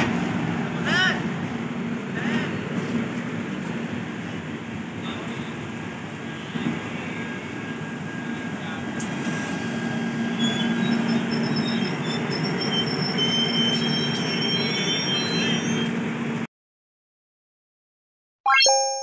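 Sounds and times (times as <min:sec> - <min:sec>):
train wheels rumbling on track: 0:00.0 - 0:16.4
brake squeals: 0:06.4 - 0:16.2.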